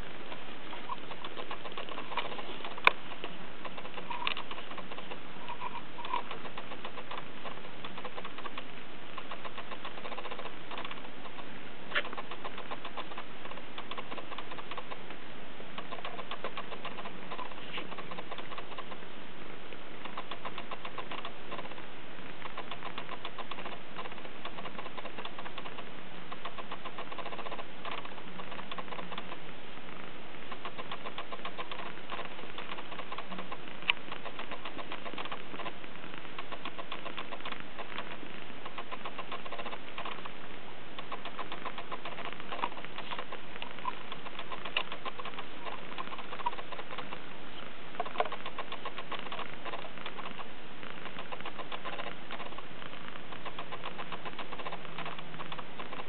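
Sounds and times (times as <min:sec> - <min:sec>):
rapid ticking: 0:00.0 - 0:19.1, 0:19.7 - 0:56.0
sharp click: 0:00.7 - 0:15.1.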